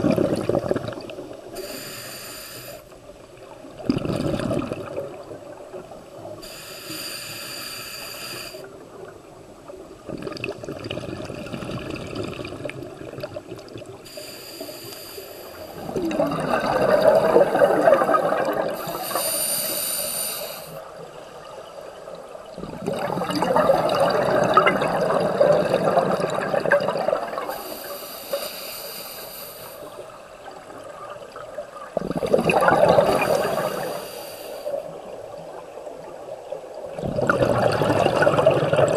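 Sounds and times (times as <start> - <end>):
exhaled bubbles bursting: 0.0 - 1.2, 3.8 - 5.5, 10.1 - 13.9, 15.8 - 19.0, 22.5 - 27.5, 31.9 - 33.8, 36.9 - 38.9
hissing regulator inhalations: 1.6 - 2.9, 6.4 - 8.7, 14.1 - 16.0, 18.8 - 20.9, 27.5 - 30.0, 33.1 - 35.0.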